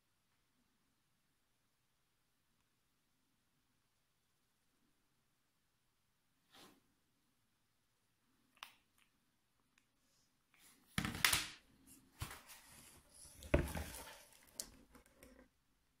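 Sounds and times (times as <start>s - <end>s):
cardboard box rustling and scraping: 12.3s - 14.5s.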